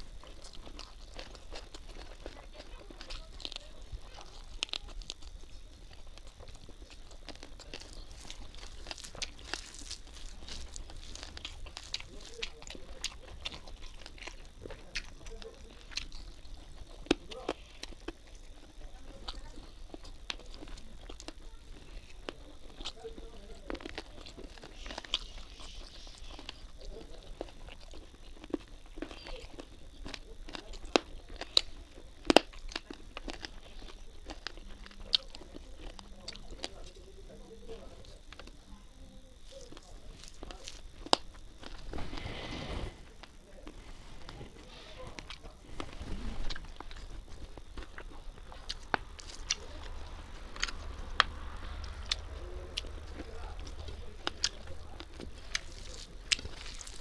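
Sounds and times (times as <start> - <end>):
hand squishing rice: 0.0 - 18.8, 39.3 - 57.0
chewing and wet mouth smacks: 0.0 - 37.0, 39.4 - 42.0, 43.2 - 57.0.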